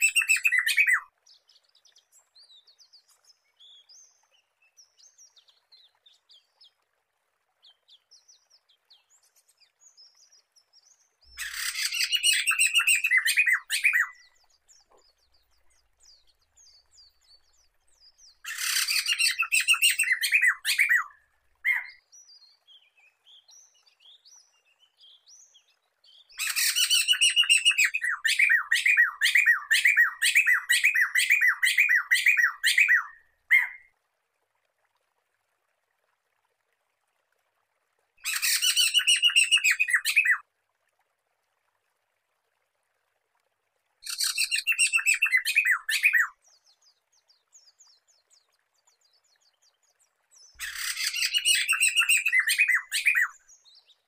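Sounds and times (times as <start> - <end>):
bird chattering song: 0.0 - 1.1, 11.4 - 15.2, 18.3 - 22.0, 44.0 - 46.3, 50.6 - 53.9.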